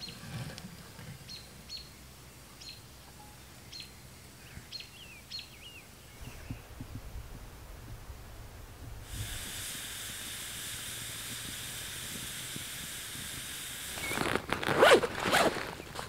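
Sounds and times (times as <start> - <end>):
campfire hissing: 6.2 - 16.0
rummaging through backpack: 14.0 - 16.0.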